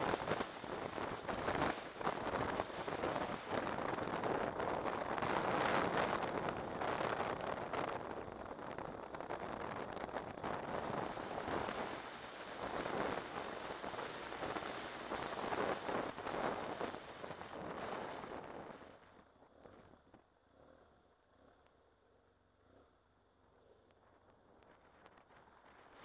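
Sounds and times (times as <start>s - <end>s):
wind rushing over microphone: 0.0s - 20.8s.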